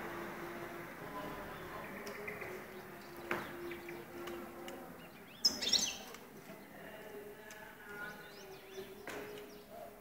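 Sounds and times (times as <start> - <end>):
finches chirping: 5.0 - 6.1.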